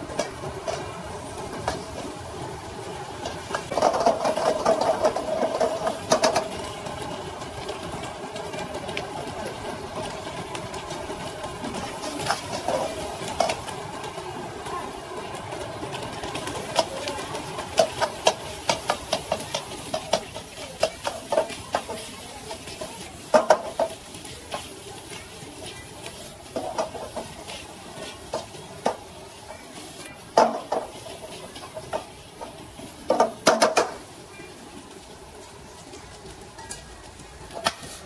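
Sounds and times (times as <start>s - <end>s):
food sizzling: 0.0s - 38.0s
metal spatula scraping a wok: 37.6s - 38.0s.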